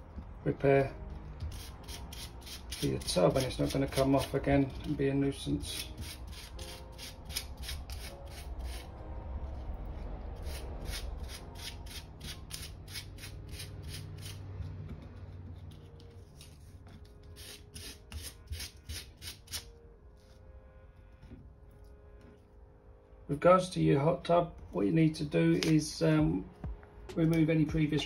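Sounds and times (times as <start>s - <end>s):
sandpaper scraping: 1.5s - 4.3s, 5.7s - 8.9s, 10.4s - 14.5s, 15.6s - 19.7s.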